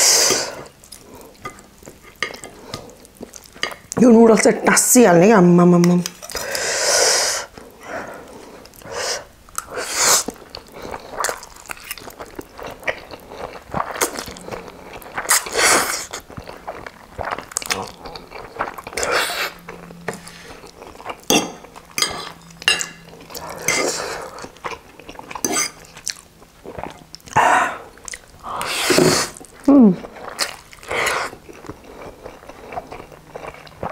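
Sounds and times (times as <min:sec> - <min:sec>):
wet chewing: 0:09.5 - 0:33.9
slurping noodles: 0:13.2 - 0:16.3, 0:17.2 - 0:19.6, 0:28.5 - 0:29.5.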